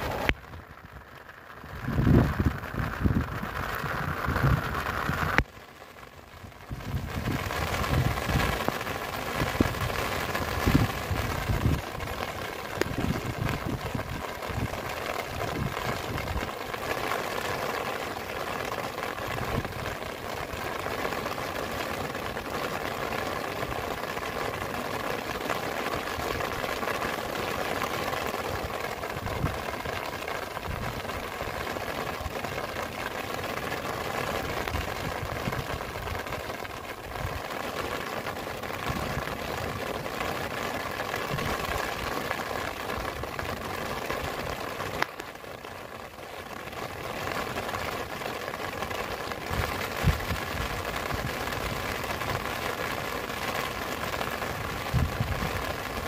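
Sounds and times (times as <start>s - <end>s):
wind gusts on microphone: 0.0s - 5.4s, 6.6s - 8.7s, 9.4s - 12.0s, 12.7s - 16.5s, 49.5s - 51.5s, 54.8s - 55.8s
heavy rain: 0.0s - 56.0s.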